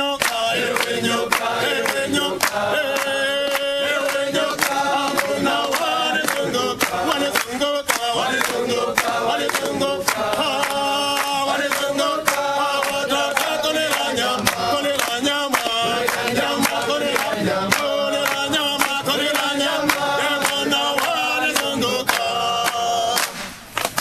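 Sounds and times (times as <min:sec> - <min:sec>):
men singing in chorus: 0:00.0 - 0:23.5
hand clapping: 0:00.0 - 0:24.0.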